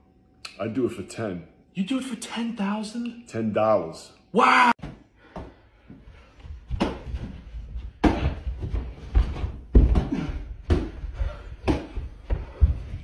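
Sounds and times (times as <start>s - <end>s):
running footsteps thumping: 6.4s - 13.0s.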